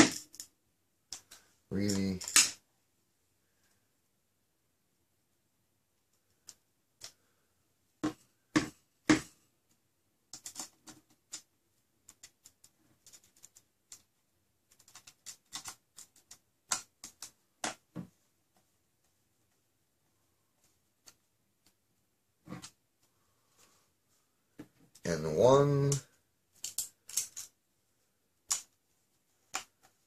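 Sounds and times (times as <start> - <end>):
plastic and metal parts clicking: 10.3 - 11.5, 14.7 - 17.8, 25.8 - 27.6.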